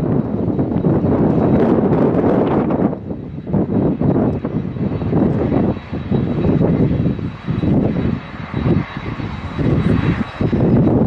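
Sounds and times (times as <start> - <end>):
jet engines roaring: 0.0 - 11.0
wind gusts buffeting the microphone: 0.0 - 11.0.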